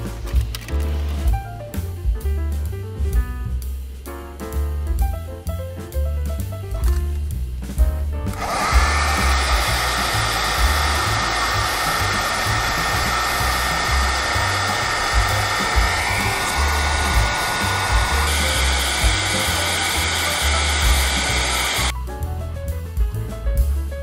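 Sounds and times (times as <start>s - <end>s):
low music beat: 0.0s - 24.0s
hot-air dryer blowing: 8.3s - 22.0s.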